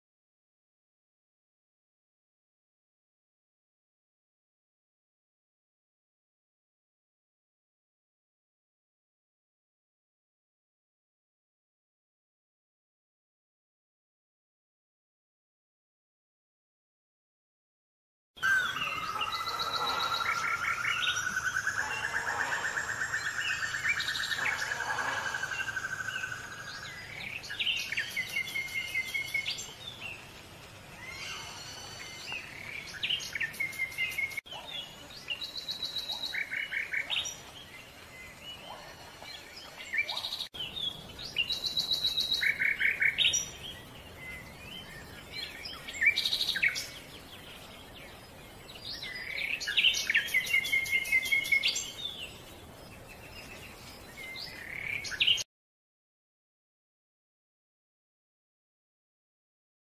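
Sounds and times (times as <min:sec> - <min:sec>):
songbird chirps and whistles: 0:18.4 - 0:29.8.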